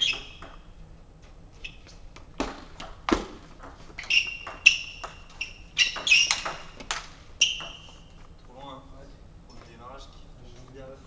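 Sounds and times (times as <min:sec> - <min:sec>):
table tennis ball knocks: 0:02.4 - 0:07.9.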